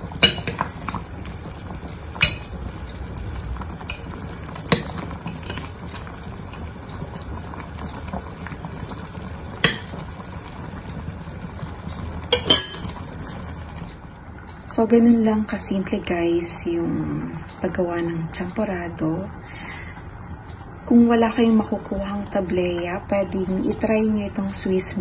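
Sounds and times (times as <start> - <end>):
porridge bubbling: 0.0 - 25.0
metal spoon clinking on glass pot: 12.3 - 12.9.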